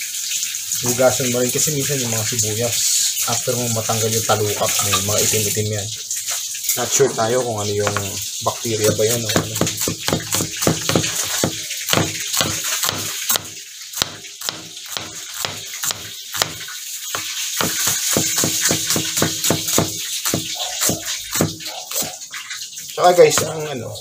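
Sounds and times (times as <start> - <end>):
knife slicing onion on cutting board: 7.8 - 22.2.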